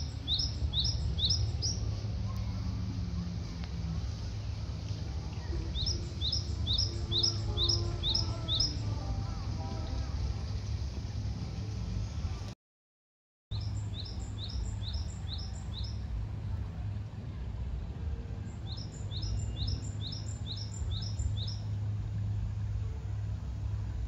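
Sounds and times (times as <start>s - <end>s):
songbird chirping: 0.0s - 12.1s, 13.5s - 16.2s, 18.4s - 22.4s
steady low rumble: 0.0s - 12.6s, 13.5s - 24.0s.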